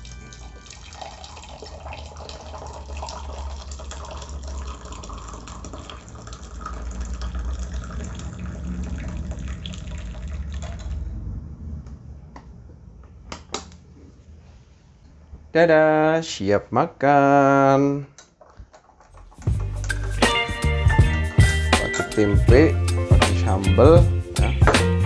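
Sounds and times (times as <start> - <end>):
tea pouring into mug: 0.0 - 11.0.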